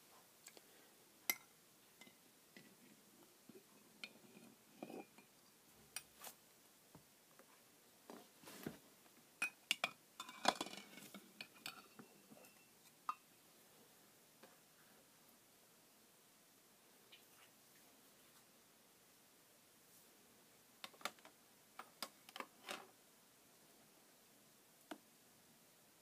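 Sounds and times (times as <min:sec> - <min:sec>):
metal spoon clinking on glass jars: 0:09.4 - 0:13.2.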